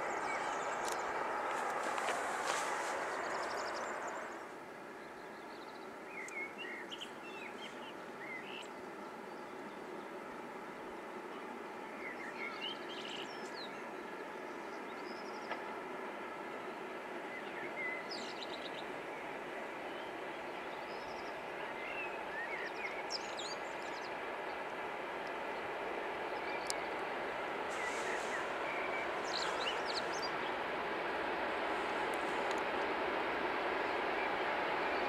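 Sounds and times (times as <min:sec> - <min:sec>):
loud rushing noise: 0:00.0 - 0:04.4
freight train rumble: 0:00.0 - 0:05.0, 0:06.6 - 0:35.0
small birds chirping: 0:27.7 - 0:30.6.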